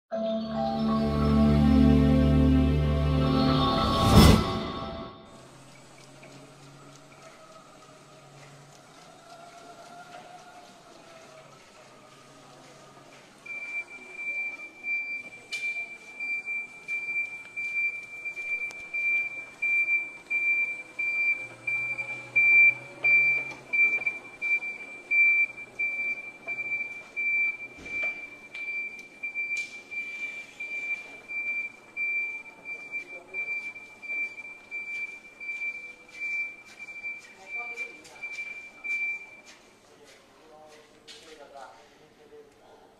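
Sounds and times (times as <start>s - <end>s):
high-pitched warning beeps: 13.5s - 39.6s.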